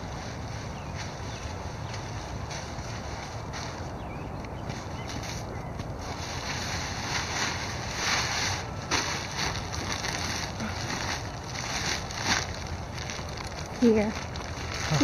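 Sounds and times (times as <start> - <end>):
plastic bag rustling: 6.0 - 15.0.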